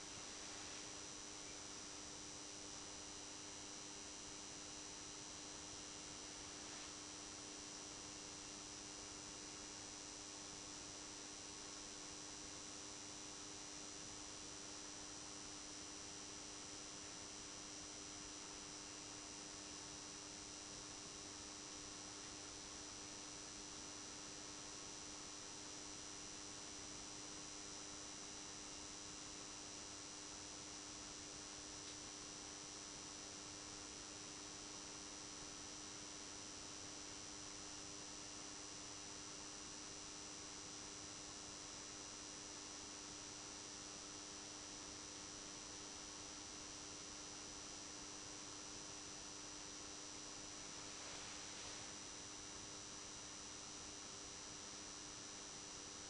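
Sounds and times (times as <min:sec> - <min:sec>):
constant hiss: 0:00.0 - 0:02.8, 0:05.1 - 0:08.0, 0:29.5 - 0:37.6, 0:44.6 - 0:55.2
faint electrical mains hum: 0:00.0 - 0:56.0
thin high whine: 0:50.2 - 0:52.8.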